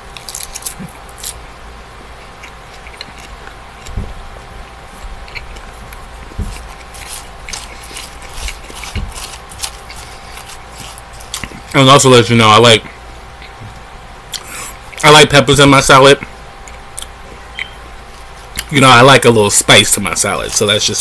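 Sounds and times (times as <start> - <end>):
chewing salad: 0.1 - 1.4, 2.1 - 4.0, 4.7 - 11.8, 16.6 - 18.7
soft low thumps: 3.8 - 5.3, 6.0 - 6.8, 8.4 - 9.2.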